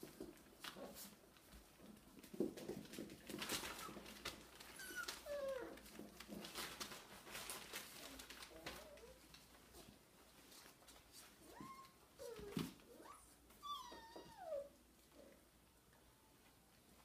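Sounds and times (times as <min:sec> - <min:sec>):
puppies whimpering: 0:04.7 - 0:05.8, 0:11.6 - 0:14.8
puppy squeak: 0:04.8 - 0:05.6.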